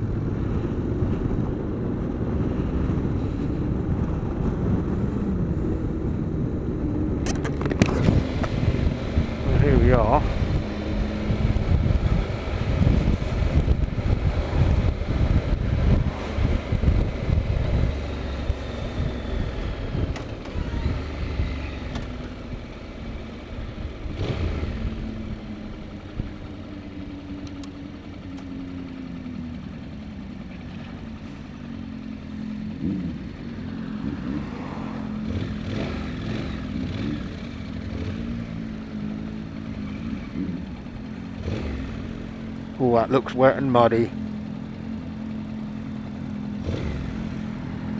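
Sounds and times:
wind noise: 0.0s - 21.8s
motorcycle engine: 0.0s - 47.9s.

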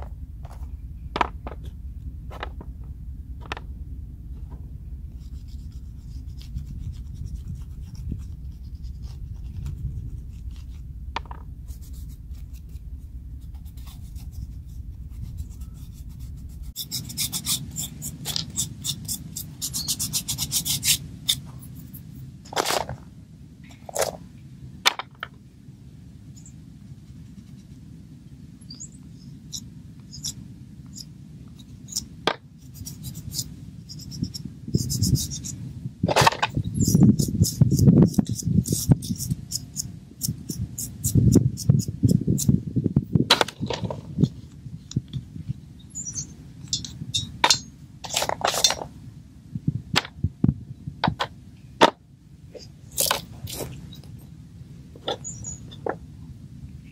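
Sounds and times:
low microphone rumble: 0.0s - 19.6s, 21.0s - 56.9s
chalk pastel scratching on bark: 5.1s - 10.9s, 13.4s - 22.0s, 32.6s - 35.6s.

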